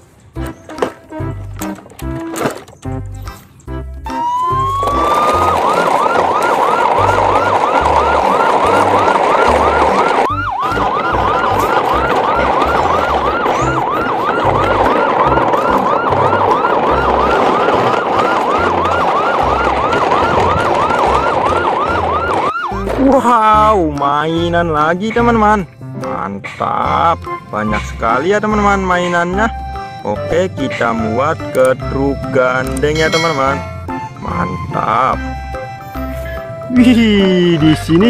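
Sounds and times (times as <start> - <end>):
electronic siren yelping: 4.0 - 23.1.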